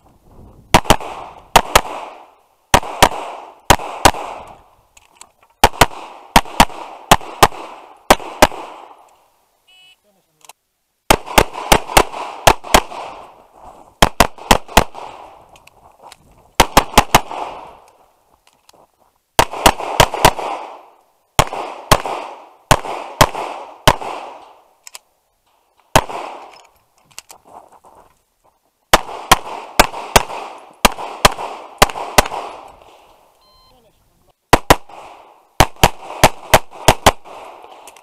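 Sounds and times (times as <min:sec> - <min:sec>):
pistol shots: 0:00.7 - 0:04.6, 0:05.6 - 0:09.1, 0:11.1 - 0:13.3, 0:14.0 - 0:15.4, 0:16.6 - 0:17.8, 0:19.4 - 0:24.6, 0:25.9 - 0:26.6, 0:28.9 - 0:32.9, 0:34.5 - 0:38.0.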